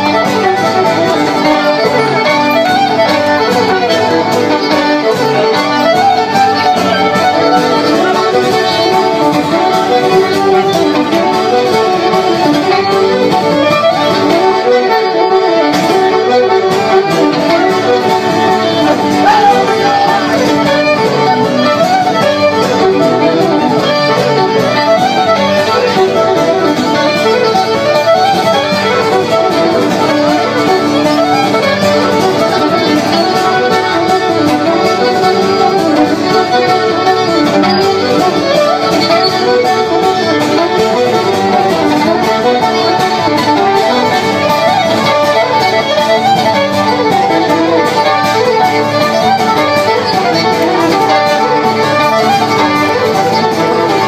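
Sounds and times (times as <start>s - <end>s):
accordion: 0.0s - 54.0s
fiddle playing: 0.0s - 54.0s
strummed acoustic guitar: 0.0s - 54.0s.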